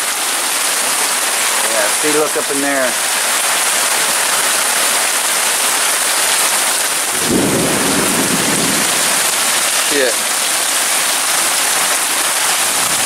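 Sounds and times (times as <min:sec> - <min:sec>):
heavy rain pouring: 0:00.0 - 0:13.0
low rumble of thunder: 0:07.2 - 0:09.7.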